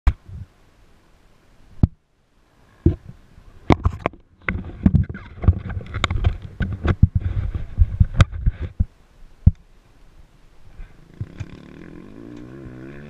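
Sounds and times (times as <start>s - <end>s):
rubbing on microphone: 3.8s - 9.0s.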